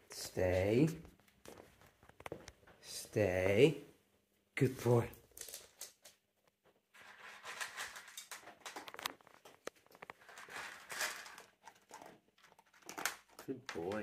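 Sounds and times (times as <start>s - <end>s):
dog crunching dry kibble: 7.0s - 14.0s.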